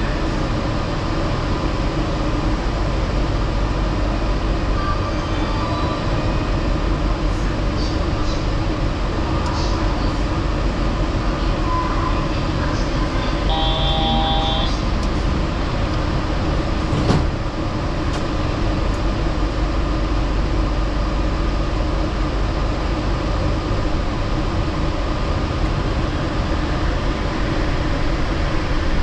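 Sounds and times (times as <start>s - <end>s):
train rumble from inside car: 0.0s - 29.0s
brief steady tone: 13.5s - 14.9s.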